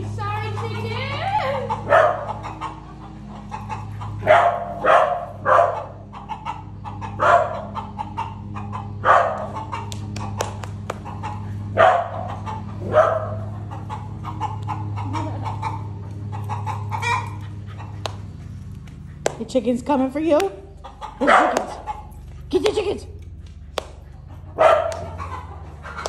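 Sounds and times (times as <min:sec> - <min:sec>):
dog barking: 0:01.7 - 0:02.8, 0:04.0 - 0:09.8, 0:11.3 - 0:14.5, 0:21.2 - 0:22.1, 0:24.4 - 0:26.0.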